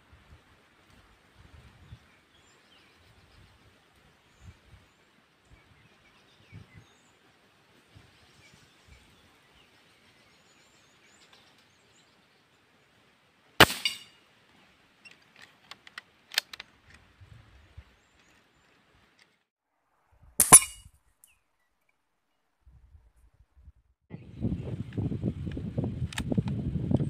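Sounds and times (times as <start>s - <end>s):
faint birdsong: 1.6s - 13.2s, 15.0s - 19.4s
air rifle shot: 13.6s - 14.0s
rifle action metallic clicks: 15.2s - 17.0s.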